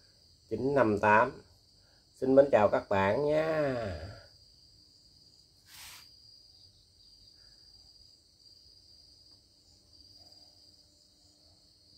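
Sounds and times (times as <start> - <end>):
crickets chirping: 0.0 - 11.9
brief burst of noise: 5.7 - 6.1.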